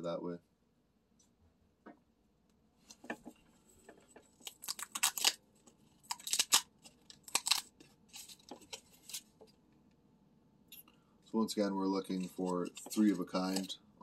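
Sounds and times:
cardboard tabs tearing: 4.3 - 5.4, 6.0 - 9.3.

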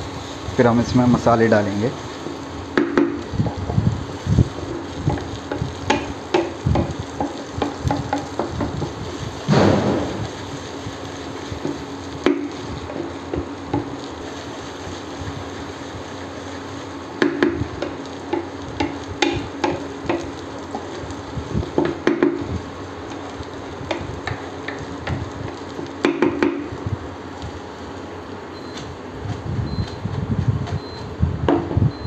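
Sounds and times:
food sizzling in oil: 0.0 - 32.0
spatula knocking against pan: 5.1 - 8.7.

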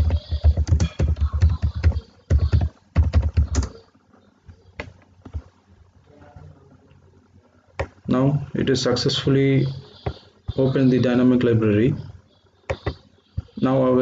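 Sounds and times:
typing on computer keyboard: 0.0 - 3.8.

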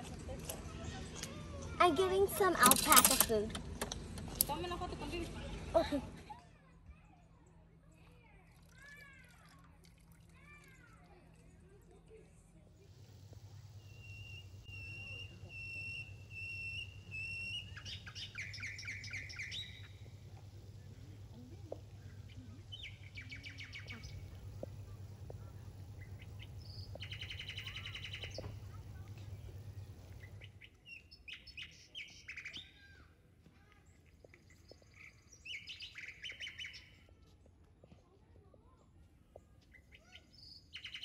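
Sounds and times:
faint low hum: 0.0 - 41.0
birds trilling and chirping: 12.9 - 33.1, 33.9 - 37.0, 39.6 - 41.0.

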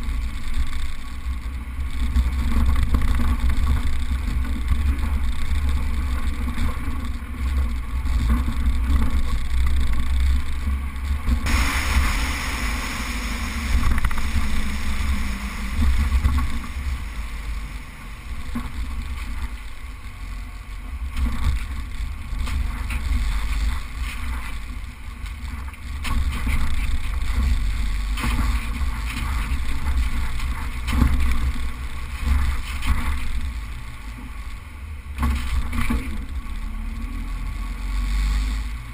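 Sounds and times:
vehicle engine and road rumble: 0.0 - 38.9
wind buffeting microphone: 1.3 - 33.7
loud hiss: 11.4 - 20.3.

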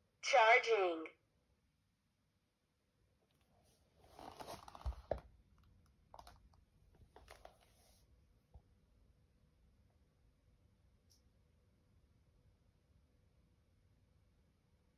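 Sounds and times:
faint rustling and crunching: 3.4 - 5.2, 6.1 - 8.1.

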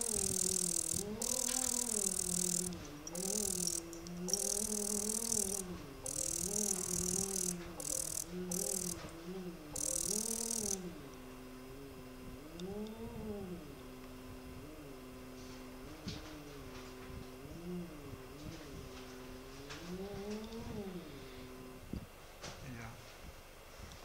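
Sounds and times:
machine hum rising and falling: 0.0 - 13.6.

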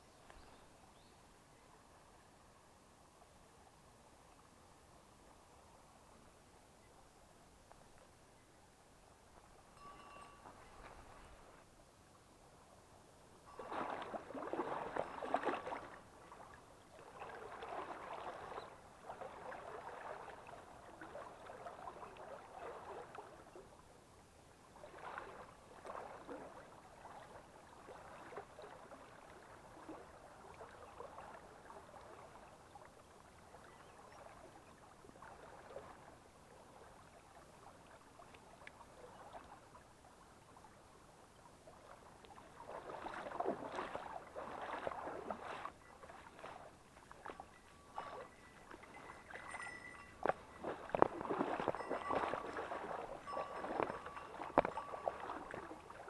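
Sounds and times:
running water: 9.4 - 11.7, 13.4 - 23.9, 24.7 - 56.0
water sloshing around wading legs: 13.5 - 23.8, 24.8 - 39.9, 41.6 - 56.0.

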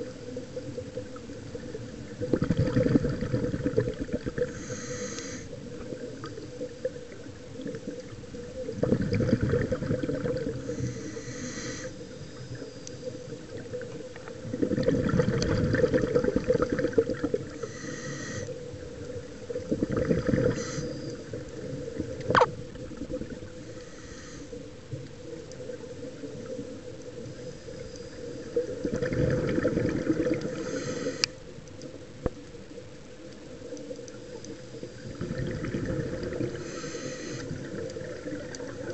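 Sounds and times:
exhaled air bubbling underwater: 0.0 - 38.9
regulator inhalation hiss: 4.5 - 5.6, 10.6 - 13.4, 17.5 - 18.6, 20.4 - 21.4, 23.6 - 24.7, 30.5 - 31.4, 36.5 - 37.6.

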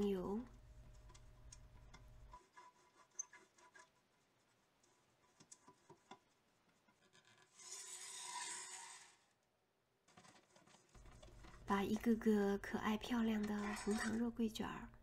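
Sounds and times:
pastry brush scraping pan: 2.2 - 9.2, 10.2 - 12.1, 13.2 - 14.2.

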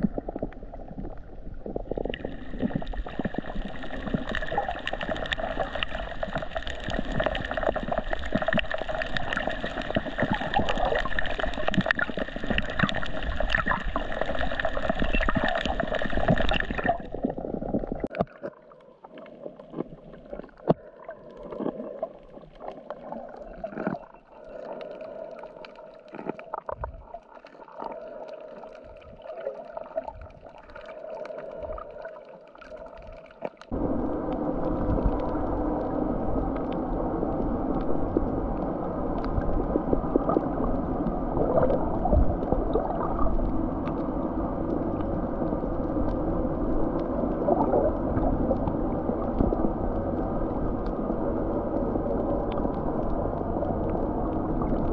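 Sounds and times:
underwater clicks and crackles: 0.0 - 54.9
underwater gurgling: 0.0 - 54.9.

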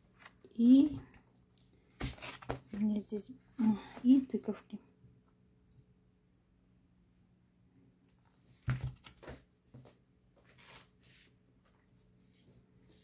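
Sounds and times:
paper rustling: 1.9 - 2.8, 10.4 - 12.6.

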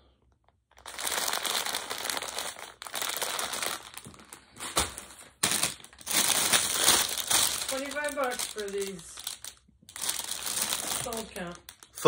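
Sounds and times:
packaging crinkling: 0.4 - 12.0.

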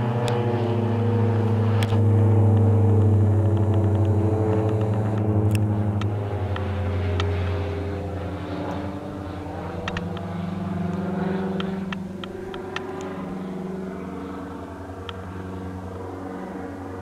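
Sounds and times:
propeller aircraft droning overhead: 0.0 - 17.0.

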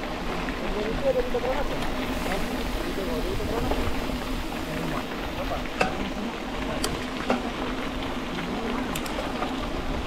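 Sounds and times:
car crackling hiss: 1.9 - 5.5.

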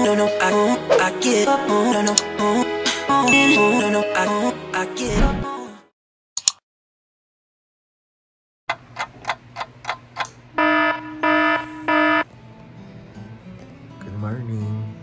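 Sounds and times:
alarm clock beeping: 10.6 - 12.2.

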